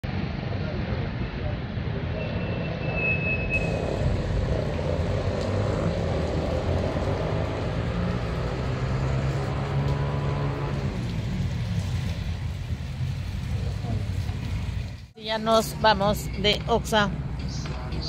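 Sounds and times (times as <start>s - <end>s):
traffic hum on wet road: 0.0s - 18.0s
engine passing: 3.6s - 15.0s.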